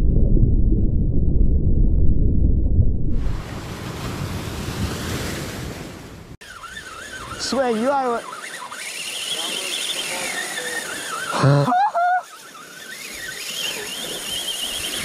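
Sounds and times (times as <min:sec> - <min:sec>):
muffled underwater rumble: 0:00.0 - 0:03.5.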